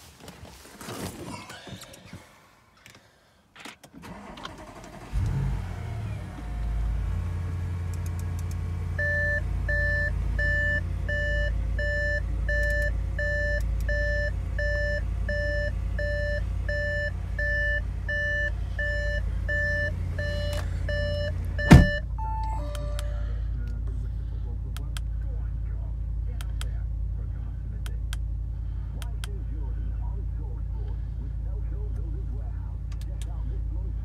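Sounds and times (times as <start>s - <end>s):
car engine idling: 4.0s - 34.0s
car warning chime beeping: 9.0s - 23.8s
loud thump: 21.6s - 22.0s.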